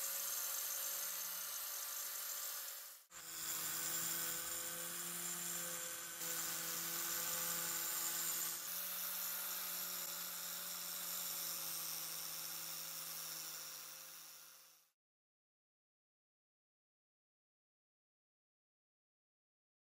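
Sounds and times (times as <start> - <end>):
power tool motor running: 0.0 - 14.9.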